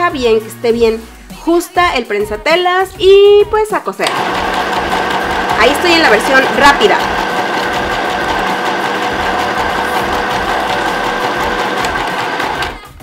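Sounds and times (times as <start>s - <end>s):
sewing machine stitching: 4.0s - 13.0s.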